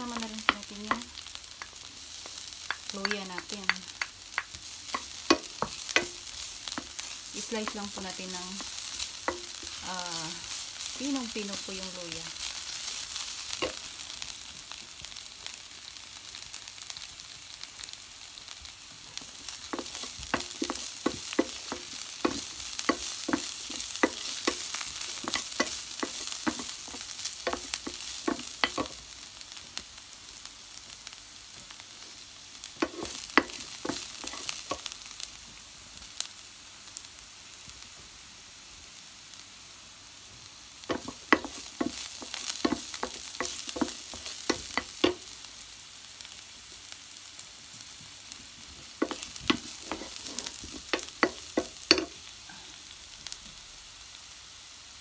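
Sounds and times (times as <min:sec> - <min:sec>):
garlic sizzling in hot oil: 0:00.0 - 0:55.0
wooden spoon scraping a pan: 0:19.2 - 0:29.0, 0:32.8 - 0:34.9, 0:40.9 - 0:45.3, 0:48.8 - 0:52.2.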